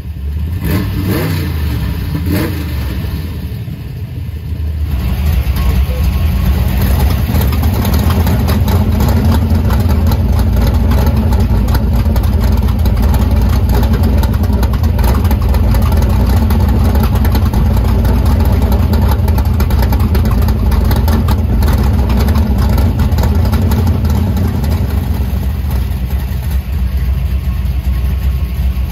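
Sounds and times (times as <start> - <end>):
car engine idling loudly: 0.0 - 28.9.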